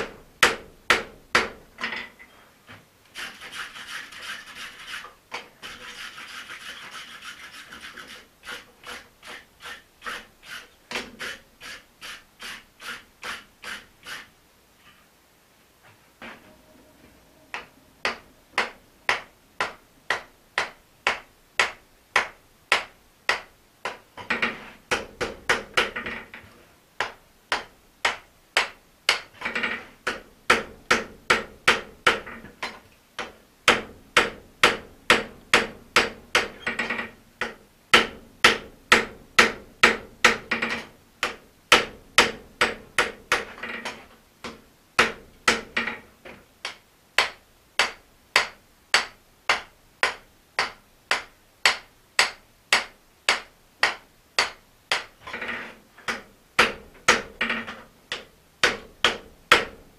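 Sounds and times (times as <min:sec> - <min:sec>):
hammer striking hot steel on anvil: 0:17.5 - 0:23.4.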